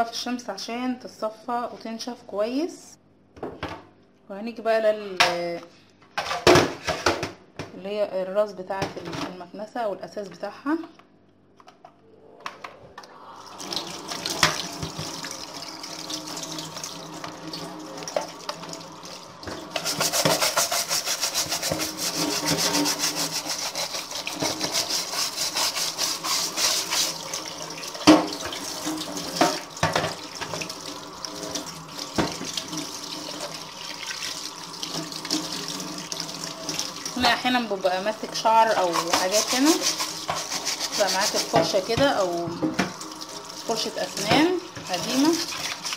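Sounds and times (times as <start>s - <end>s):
tap water running into sink: 13.4s - 37.4s, 38.6s - 45.9s.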